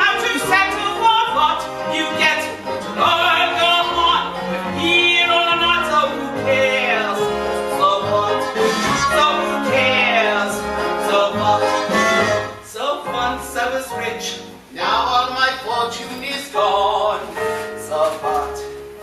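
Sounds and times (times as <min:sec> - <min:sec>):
small band playing: 0:00.0 - 0:12.7
woman singing: 0:00.0 - 0:18.7.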